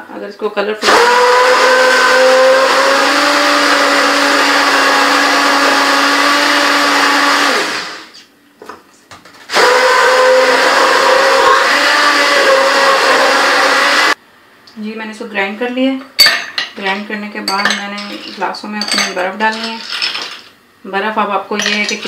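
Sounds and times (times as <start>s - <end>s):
immersion blender running: 0.8s - 8.2s, 9.5s - 14.2s.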